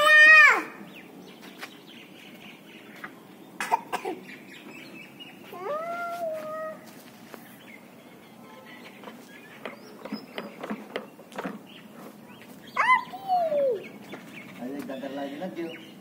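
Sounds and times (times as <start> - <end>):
young child squealing: 0.0 - 0.8, 5.6 - 6.9, 12.8 - 13.8.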